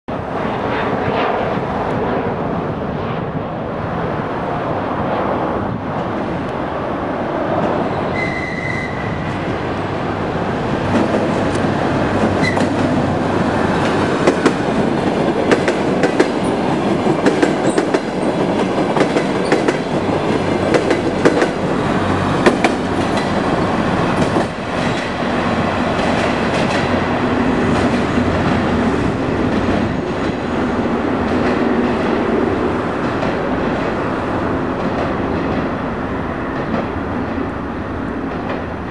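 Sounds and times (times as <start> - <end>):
diesel train engine: 4.0 - 38.9
wheels clicking over rail joints: 10.8 - 28.6.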